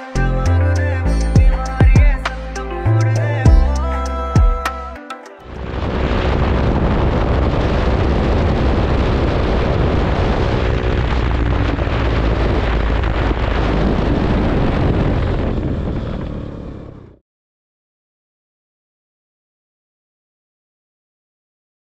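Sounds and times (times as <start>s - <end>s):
wind buffeting microphone: 5.6s - 17.2s.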